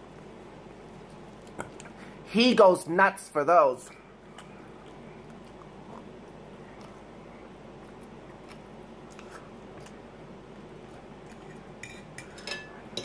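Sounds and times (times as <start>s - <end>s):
faint clicks of eating: 1.0s - 2.0s, 4.2s - 7.2s, 7.8s - 10.1s.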